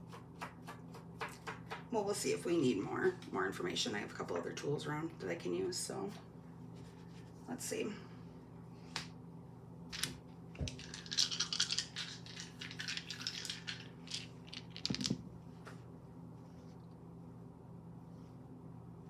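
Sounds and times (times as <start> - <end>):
wooden dice rattling in hands: 10.0 - 15.3
dice knocking on cloth: 14.1 - 15.3.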